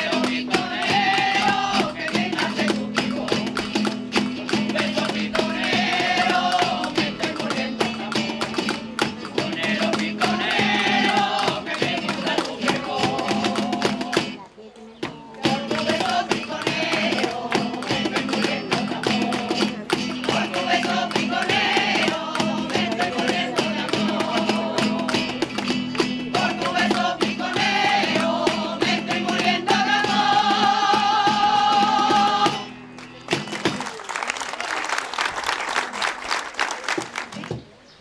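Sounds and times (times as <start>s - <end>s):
women's choir singing: 0.0s - 3.8s, 4.5s - 14.4s, 15.4s - 25.4s, 26.2s - 32.7s
hand clapping on the beat: 0.0s - 14.4s, 15.1s - 37.7s
acoustic guitar: 0.0s - 33.9s
applause: 33.0s - 37.6s.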